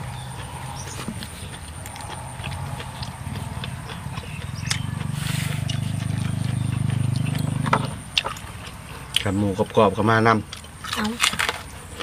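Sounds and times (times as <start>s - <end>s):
chewing and crunching food: 0.0s - 12.0s.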